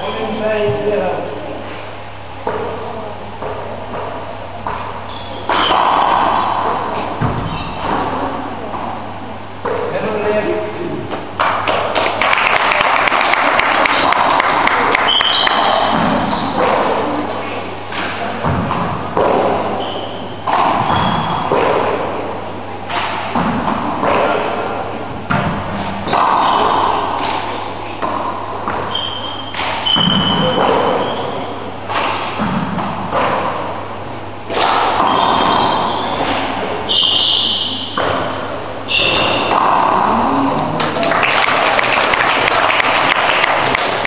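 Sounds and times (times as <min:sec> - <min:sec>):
shoes squeaking on wooden floor: 0:05.1 - 0:08.0, 0:15.1 - 0:16.8, 0:19.6 - 0:21.5, 0:28.8 - 0:31.5, 0:35.0 - 0:39.9
ball slapping off walls: 0:22.8 - 0:31.1, 0:31.9 - 0:33.6, 0:34.5 - 0:37.0.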